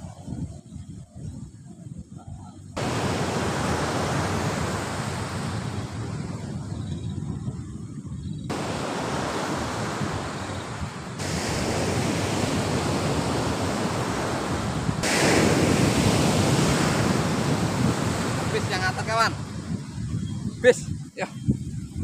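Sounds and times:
wind buffeting microphone: 0.0s - 22.0s
ocean surf breaking: 2.8s - 6.5s, 8.5s - 19.6s.

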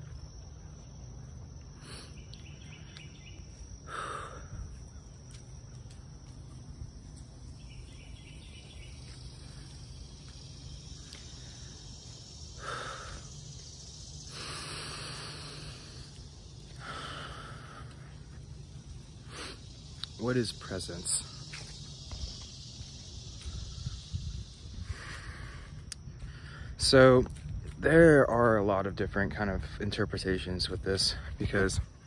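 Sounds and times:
faint insect chirping: 0.0s - 32.0s
steady low rumble: 0.0s - 32.0s
hiss: 14.2s - 16.2s.

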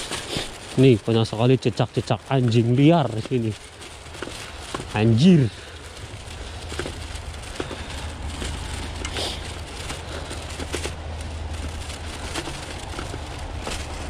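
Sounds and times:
bicycle tyres crunching over snow: 0.0s - 14.0s
clicks and rattles: 6.6s - 14.0s.

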